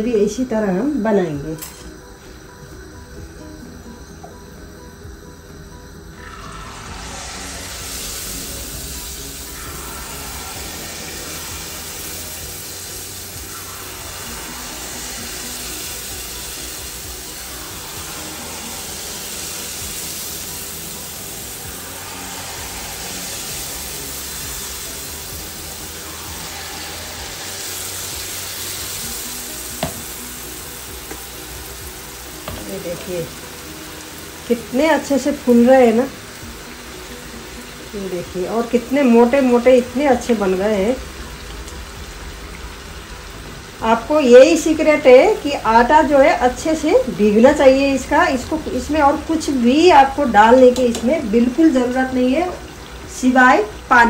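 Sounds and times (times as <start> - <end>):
batter sizzling in hot oil: 0.0 - 54.0.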